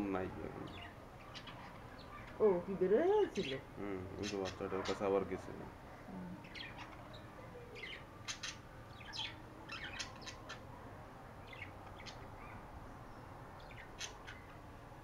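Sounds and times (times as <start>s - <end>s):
budgerigars chirping: 4.2s - 5.2s, 7.8s - 10.7s, 13.6s - 14.6s.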